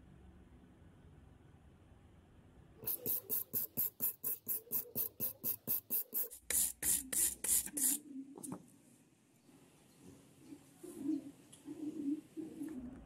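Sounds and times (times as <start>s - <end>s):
wire brush scrubbing metal file: 2.8s - 8.0s.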